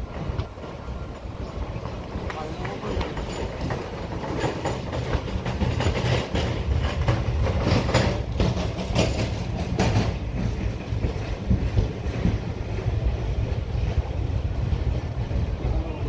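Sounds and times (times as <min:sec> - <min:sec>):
train rumbling: 0:00.0 - 0:16.0
train wheels clacking on rail joints: 0:00.0 - 0:16.0.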